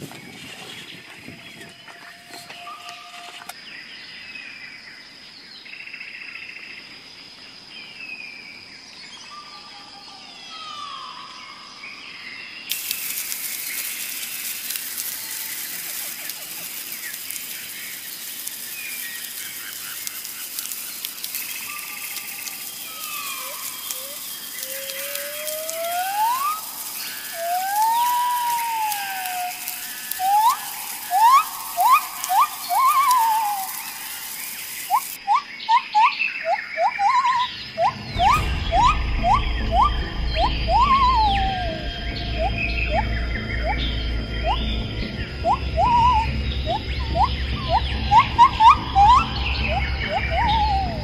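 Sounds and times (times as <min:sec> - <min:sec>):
birds chirping and whistling: 0:00.0 - 0:03.6, 0:09.1 - 0:51.0
whistled bird calls: 0:00.3 - 0:03.6, 0:12.7 - 0:51.0
loud hissing crackling noise: 0:12.7 - 0:35.3, 0:37.5 - 0:51.0.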